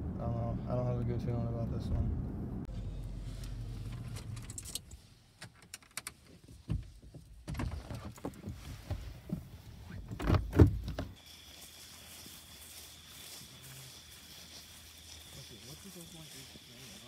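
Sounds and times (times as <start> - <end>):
rustling and clicks of handling: 3.4 - 11.5
faint hiss: 8.5 - 17.0
thin high tone: 11.2 - 17.0.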